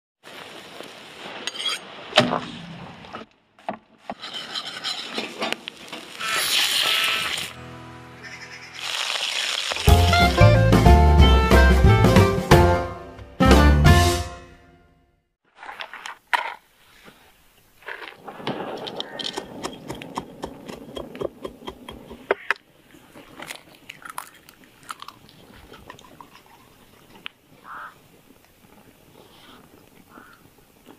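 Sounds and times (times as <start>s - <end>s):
meat sizzling over a fire: 5.6s - 7.6s, 8.6s - 10.2s
sharp knocks: 19.3s - 22.5s.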